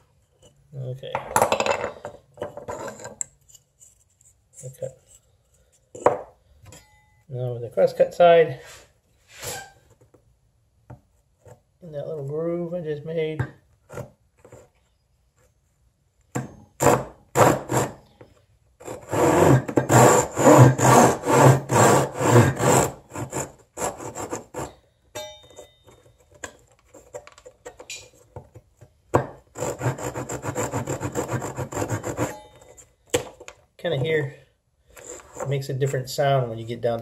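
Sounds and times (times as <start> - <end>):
hand saw cutting wood: 16.8 - 18.0, 18.8 - 24.8, 29.5 - 32.4.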